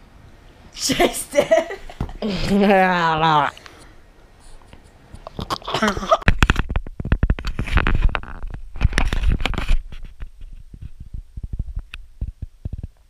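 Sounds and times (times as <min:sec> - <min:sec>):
microphone handling noise: 0:04.4 - 0:13.0.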